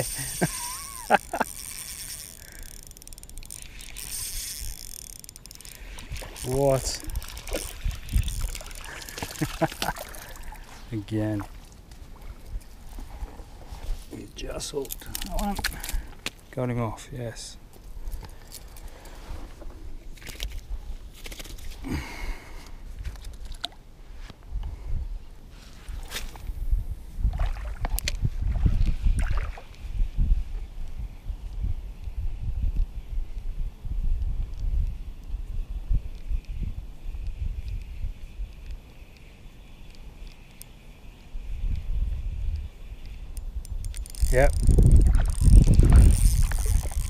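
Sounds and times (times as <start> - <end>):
fishing reel gears whirring: 0.0 - 9.3, 43.0 - 47.0
reel clicks: 0.0 - 10.6, 14.6 - 16.4, 18.0 - 19.2, 37.2 - 47.0
wind on microphone: 3.4 - 11.0, 24.4 - 38.8, 41.3 - 47.0.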